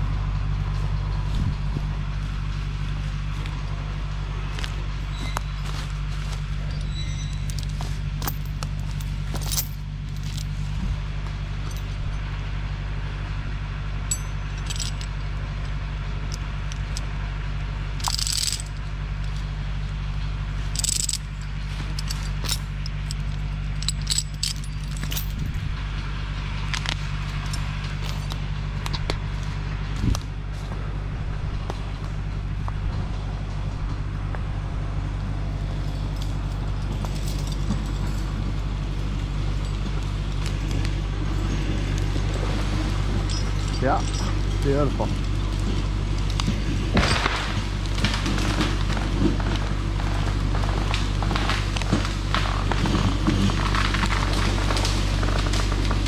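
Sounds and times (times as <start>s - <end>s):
tractor engine running: 0.0s - 56.0s
metallic clinks and jangles: 6.8s - 10.7s, 11.6s - 12.4s, 14.1s - 15.4s, 18.0s - 18.8s, 20.7s - 25.7s, 26.9s - 28.4s, 35.8s - 38.6s, 43.2s - 45.2s.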